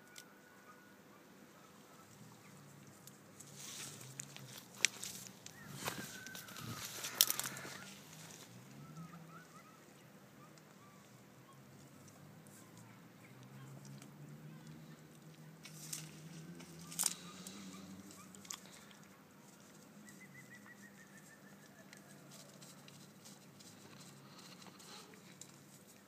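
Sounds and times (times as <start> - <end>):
donkey chewing dry plants: 2.4 - 9.1, 13.5 - 26.0
brittle stalks crunching and rustling: 2.9 - 8.6, 15.6 - 20.8.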